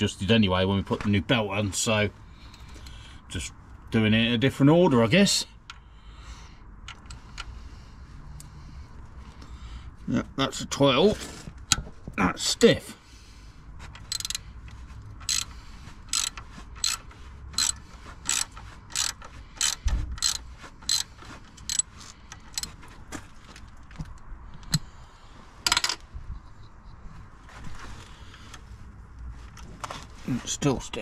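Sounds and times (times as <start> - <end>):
socket ratchet clicking: 6.8 - 7.5, 14.0 - 15.5, 16.1 - 22.8.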